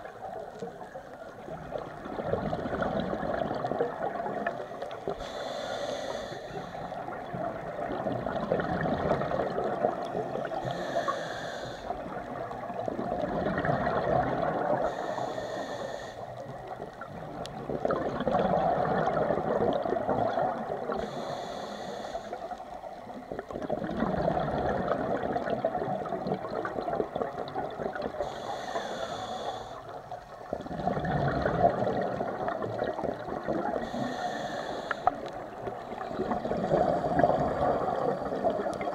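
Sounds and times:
exhaled air bubbling: 0.0s - 38.9s
regulator inhalation hiss: 4.5s - 6.9s, 10.3s - 12.0s, 14.8s - 16.6s, 21.0s - 22.8s, 28.2s - 30.4s, 33.8s - 35.4s.

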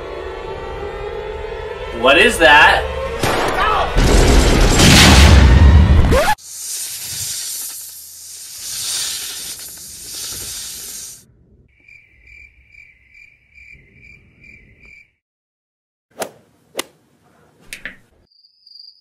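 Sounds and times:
loud even hiss: 6.2s - 11.3s
faint cricket chirping: 11.7s - 15.2s, 18.3s - 19.0s.

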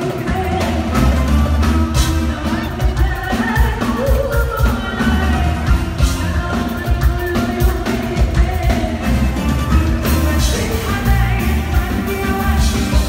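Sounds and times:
heavy drum beat: 0.0s - 13.0s
live band playing loud: 0.0s - 13.0s
woman singing: 0.0s - 13.0s.

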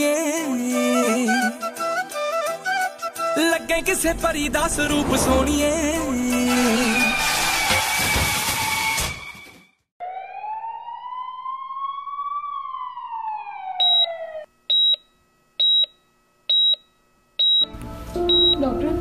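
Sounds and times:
emergency siren wailing: 10.0s - 14.5s
patient monitor beeping: 13.8s - 17.7s, 18.3s - 18.6s.

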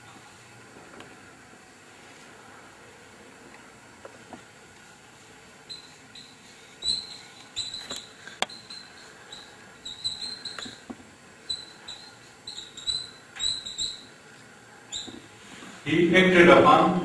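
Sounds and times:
marker squeaking on whiteboard: 5.7s - 14.2s, 14.9s - 15.3s.

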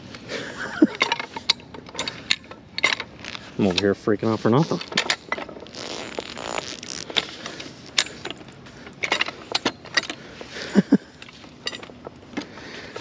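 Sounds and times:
metallic ratchet clicks and clanks: 0.8s - 3.9s, 4.7s - 5.6s, 8.0s - 10.2s, 11.1s - 12.2s.

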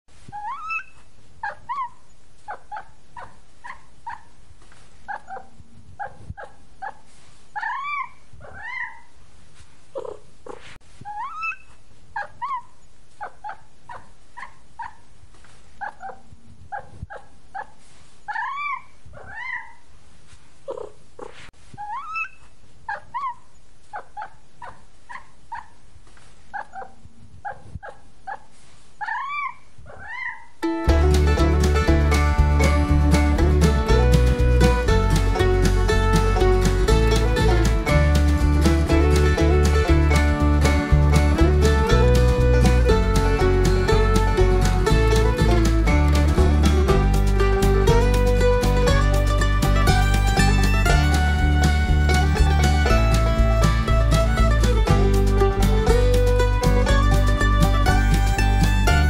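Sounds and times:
music made of cat meows: 30.8s - 59.0s.

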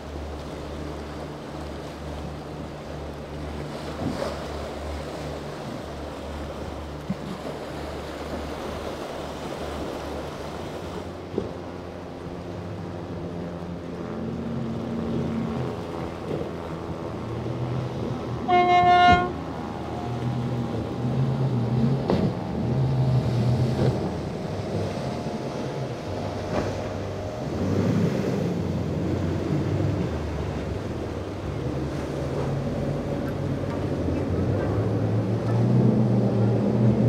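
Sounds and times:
boat engines running: 0.0s - 37.0s
wash of rough water: 0.0s - 37.0s
loud horn blast: 18.3s - 20.2s.

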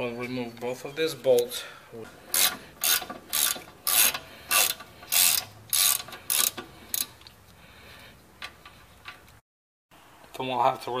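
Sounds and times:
ratchet wrench clicking: 2.3s - 7.2s.

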